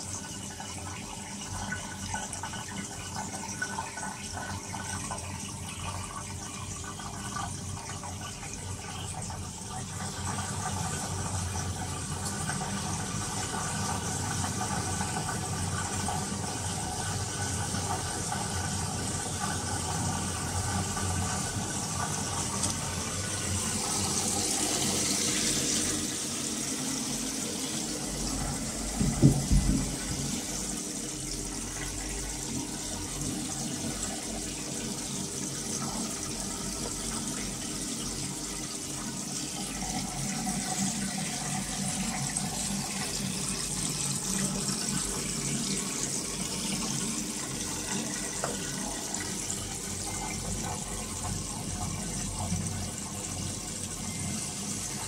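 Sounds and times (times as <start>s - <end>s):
water running into washing machine: 0.0s - 55.0s
brief thump: 29.0s - 30.1s.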